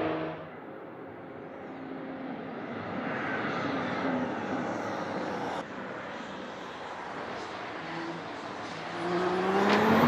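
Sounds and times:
race car approaching with whine: 0:00.0 - 0:10.0.

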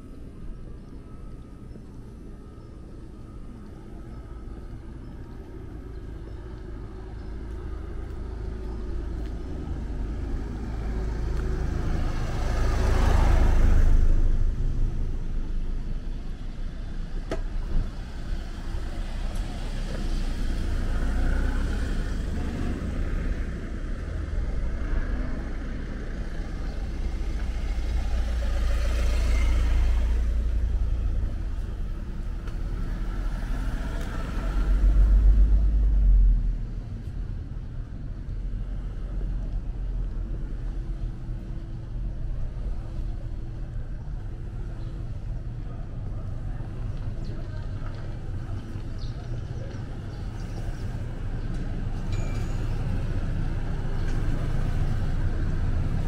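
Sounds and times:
steady low traffic rumble: 0:00.0 - 0:56.0
vehicle passing by: 0:07.8 - 0:15.2, 0:17.8 - 0:37.0.

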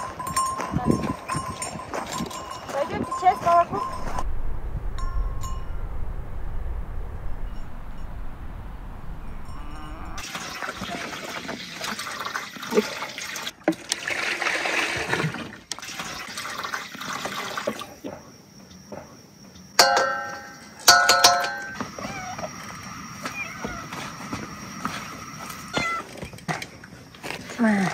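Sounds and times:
metallic clinks on steel basin: 0:00.0 - 0:04.2, 0:19.8 - 0:21.8
milk pouring and splashing: 0:10.2 - 0:17.9.

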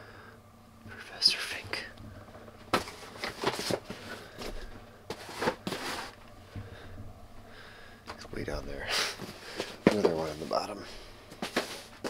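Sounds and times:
packages rustling: 0:02.1 - 0:06.9, 0:09.1 - 0:12.0
boxes knocking: 0:09.6 - 0:10.4.

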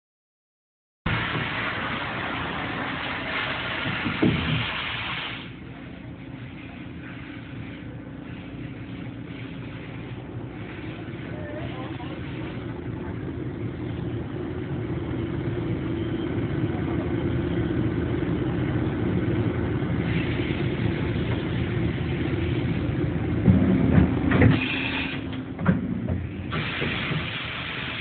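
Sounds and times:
hiss: 0:01.1 - 0:05.6, 0:20.0 - 0:22.6, 0:24.5 - 0:25.2, 0:26.4 - 0:28.0
machining center hum: 0:05.5 - 0:28.0.

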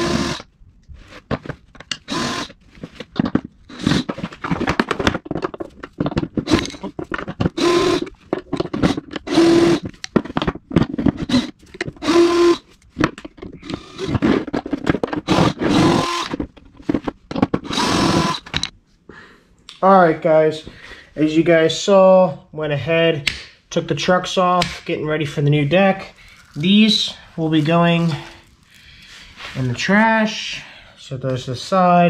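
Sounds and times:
cordless drill spinning: 0:00.0 - 0:00.5, 0:02.0 - 0:03.0, 0:03.7 - 0:04.5, 0:06.1 - 0:10.0, 0:11.0 - 0:12.7, 0:13.6 - 0:14.5, 0:15.1 - 0:16.4, 0:17.6 - 0:18.5
bolts and tools clicking and scraping: 0:00.1 - 0:18.8.

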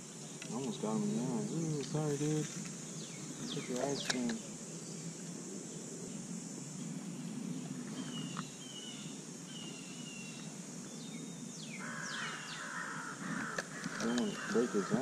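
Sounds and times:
steady high hiss: 0:00.0 - 0:15.0
birds chirping and whistling: 0:02.9 - 0:05.0, 0:07.8 - 0:15.0
harsh cawing bird call: 0:11.7 - 0:15.0.

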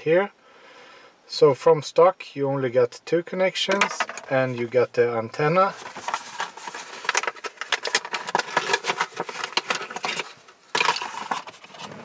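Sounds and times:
packaging crinkling: 0:05.7 - 0:11.9.

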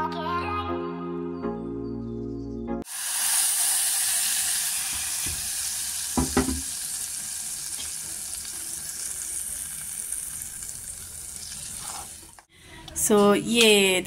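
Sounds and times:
hot oil sizzling in a pot: 0:02.8 - 0:12.5
sharp knocks: 0:06.2 - 0:06.6.

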